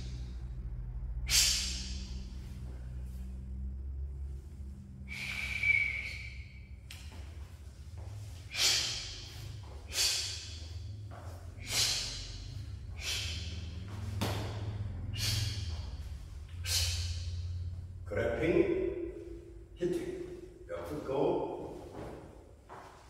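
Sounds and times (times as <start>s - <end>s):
sharp hissing breaths: 0.0s - 3.7s, 5.0s - 6.4s, 8.2s - 17.7s
low steady hum: 0.0s - 23.0s.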